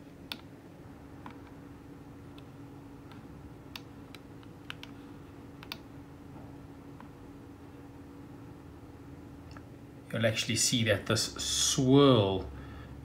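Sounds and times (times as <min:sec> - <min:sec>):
steady low hum: 0:00.0 - 0:13.0
computer mouse clicking: 0:00.2 - 0:00.5, 0:01.2 - 0:01.6, 0:02.3 - 0:05.0, 0:05.6 - 0:05.9.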